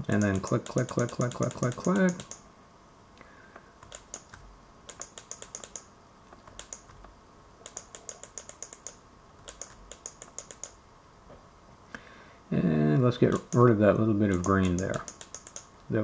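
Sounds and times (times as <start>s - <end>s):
computer mouse clicking: 0.1s - 2.4s, 3.8s - 10.8s, 13.3s - 13.7s, 14.3s - 15.7s.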